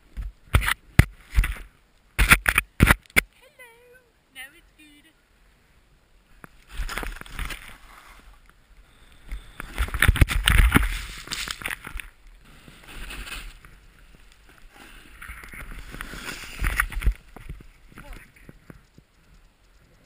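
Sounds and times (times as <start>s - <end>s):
wind rushing over camera: 5.9s - 20.0s
snowboard scraping through snow: 6.7s - 8.4s, 10.6s - 11.6s, 12.4s - 17.4s
body tumbling in snow: 9.7s - 11.6s, 12.4s - 18.2s.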